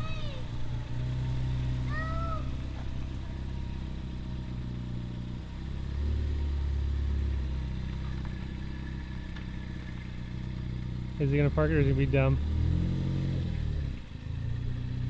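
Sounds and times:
car engine running at low speed: 0.0 - 15.0.

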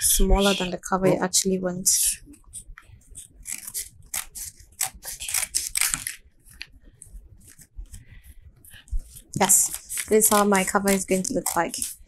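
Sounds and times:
scissors snipping paper: 2.6 - 6.6, 9.0 - 12.0.

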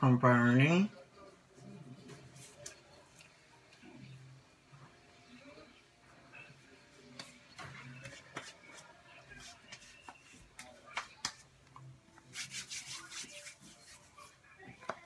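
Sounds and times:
hands rubbing on skin: 12.2 - 14.3.

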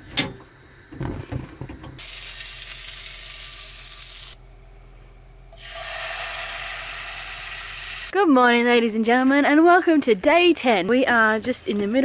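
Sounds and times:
hot oil sizzling in frying pan: 2.0 - 4.4, 5.6 - 8.1.

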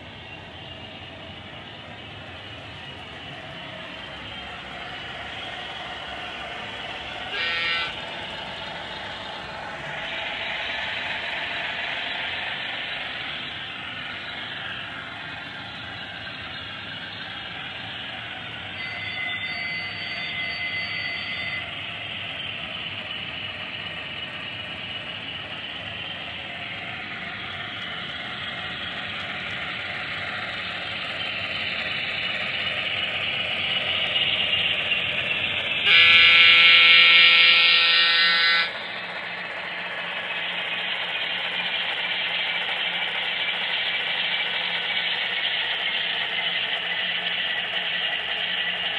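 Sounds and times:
model train diesel engine sound: 0.0 - 48.9
wheel and motor noise on track: 0.0 - 48.9
train horn blast: 7.3 - 8.2, 35.8 - 38.8.

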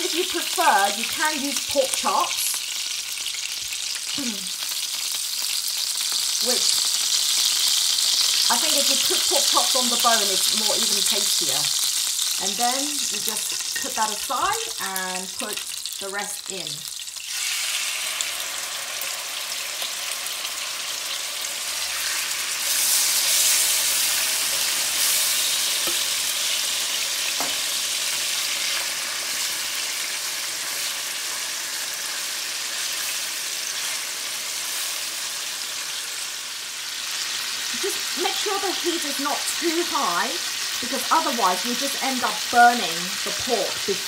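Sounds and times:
meat sizzling in a pan: 0.0 - 44.0.

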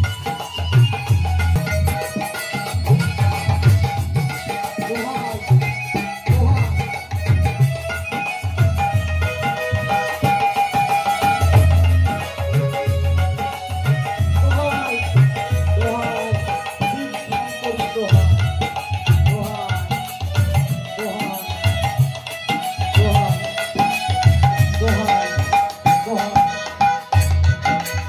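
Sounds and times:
hand drum beat: 0.0 - 28.0
harmonium: 0.0 - 28.0
man singing: 14.4 - 21.8, 22.9 - 24.1, 24.7 - 26.7.

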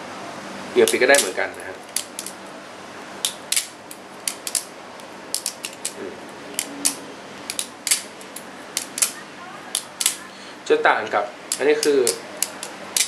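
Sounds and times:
butterfly knife metallic clicks: 6.6 - 8.1, 11.5 - 13.0.

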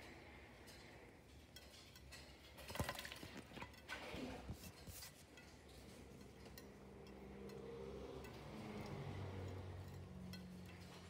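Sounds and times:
small clinks against glass: 4.7 - 11.0.

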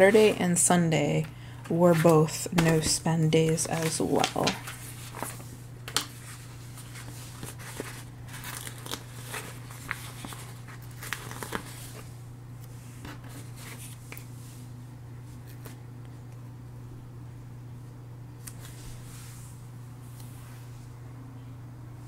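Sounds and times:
steady low hum: 0.0 - 22.0
paper crinkling and tearing: 1.9 - 12.1.

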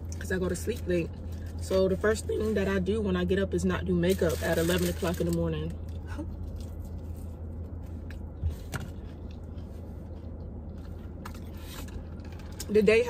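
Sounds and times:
low hum: 0.0 - 13.0
person chewing crunchy food: 8.9 - 12.4.

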